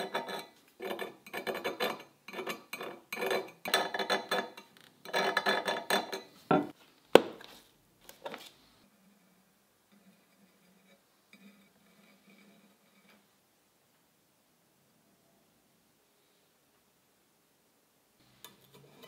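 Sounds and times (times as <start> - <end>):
file scraping steel blade: 0.0 - 4.5.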